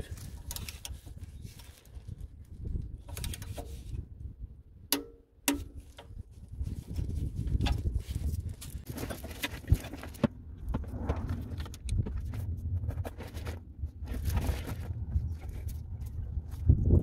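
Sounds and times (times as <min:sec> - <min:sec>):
steady low rumble: 0:09.7 - 0:17.0.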